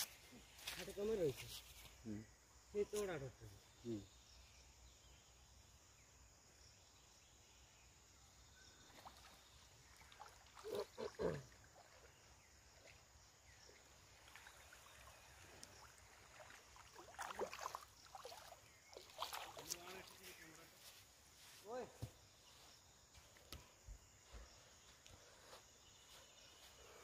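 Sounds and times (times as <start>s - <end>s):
faint riverside hiss: 0.0s - 27.0s
water splashing and dripping: 8.9s - 12.1s, 13.8s - 20.6s.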